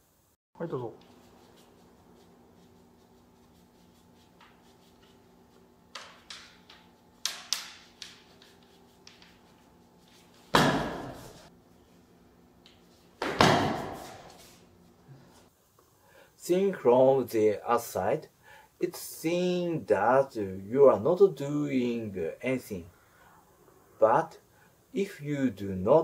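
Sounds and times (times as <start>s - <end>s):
bamboo swords knocking together: 6.0s - 8.4s, 10.5s - 11.2s, 13.2s - 14.2s.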